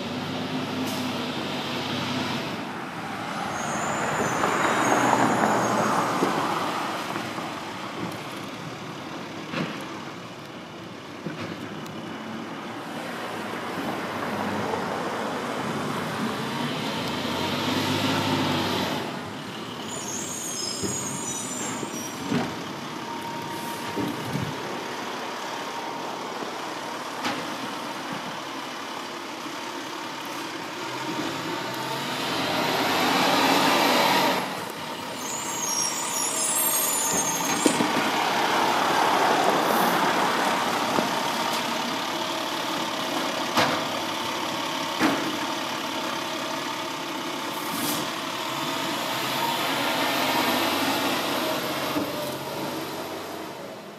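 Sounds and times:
air brakes hissing: 3.3 - 6.0, 19.8 - 22.3, 23.2 - 24.4, 33.6 - 38.0, 47.5 - 48.2
truck diesel engine revving: 13.8 - 21.0, 21.6 - 53.6.

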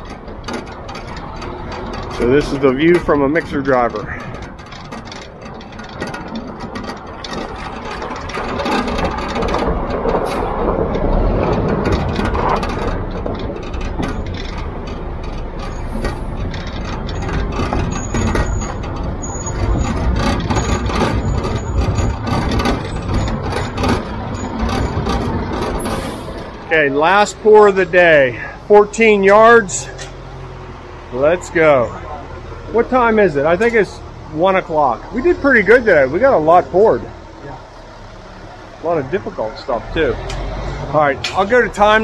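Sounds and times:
knocks and rattles in truck cab: 0.0 - 26.8
truck engine rumble: 0.0 - 42.0.

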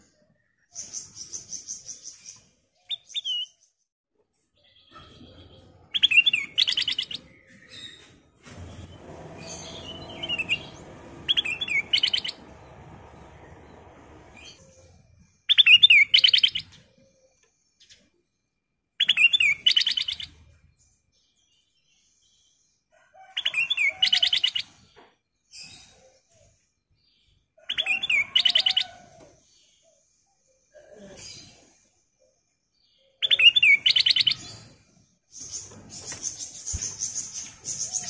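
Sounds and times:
bird singing warbled whistles and trills: 5.9 - 8.0, 15.4 - 17.4, 19.0 - 20.4, 33.0 - 34.6.

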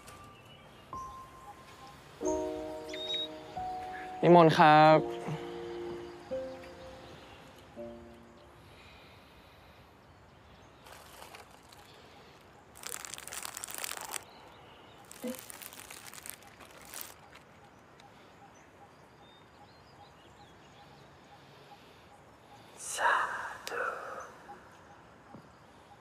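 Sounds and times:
faint bird chirps: 0.0 - 26.0
rustling and crinkling of food: 10.7 - 17.6.

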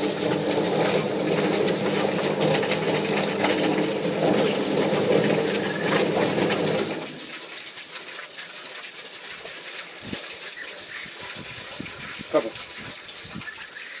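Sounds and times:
plucking machine motor hum: 0.0 - 7.2
hose water splashing into drum: 0.0 - 14.0.

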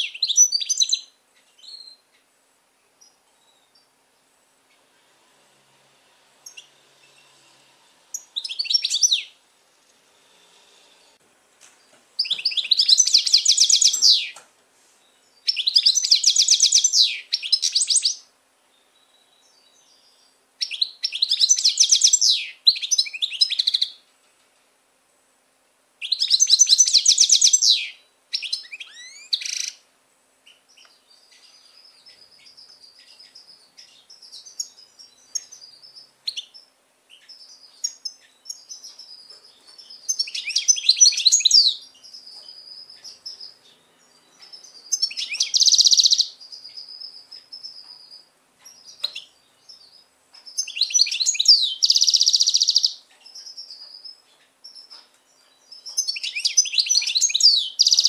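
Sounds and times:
bird twittering: 12.2 - 14.4, 15.4 - 18.3, 26.0 - 29.8, 30.5 - 43.6, 44.3 - 49.9, 50.5 - 55.0, 55.7 - 58.0.

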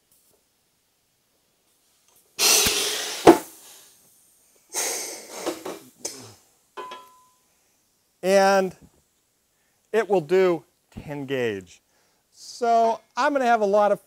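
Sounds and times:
compressed air hiss: 2.4 - 6.5
small metal knocks: 6.8 - 7.4.

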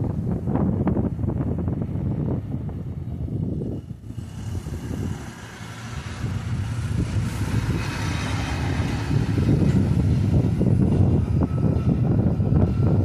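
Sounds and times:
truck engine rumble: 0.0 - 13.0
motor scooter passing: 3.4 - 13.0.

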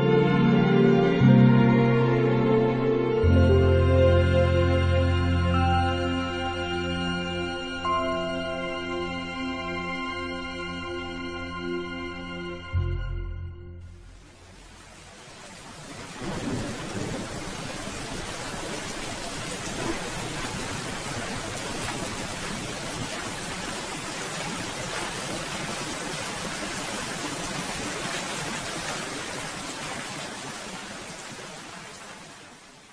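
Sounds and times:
steady rainfall: 13.8 - 32.9.

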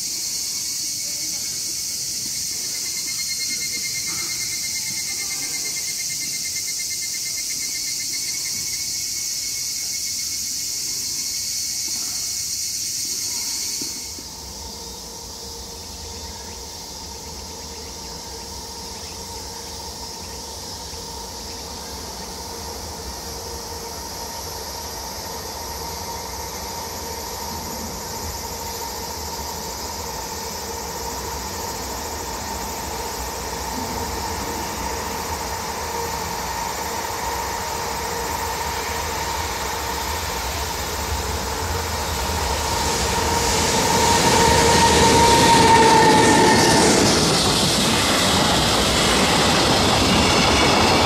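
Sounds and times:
insects chirring: 0.0 - 51.0
train rumble and hum: 0.0 - 51.0.

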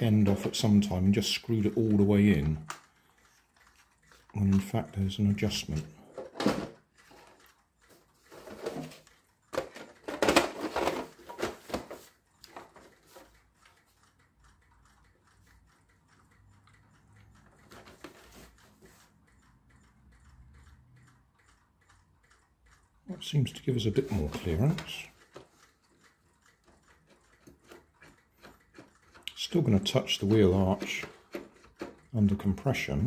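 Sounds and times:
hollow plastic knocks and rattles: 6.1 - 6.8, 8.5 - 12.9.

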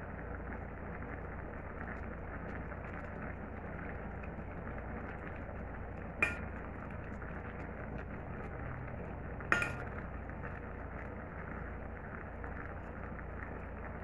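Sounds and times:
stew simmering in a pot: 0.0 - 14.0
metal ladle clinking on pot: 6.2 - 6.6, 9.5 - 10.0.

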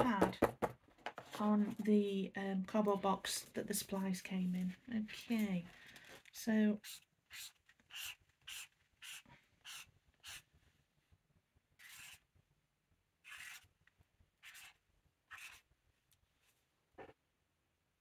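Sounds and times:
marker scratching on paper: 11.8 - 12.2, 13.2 - 13.6, 14.4 - 15.7.

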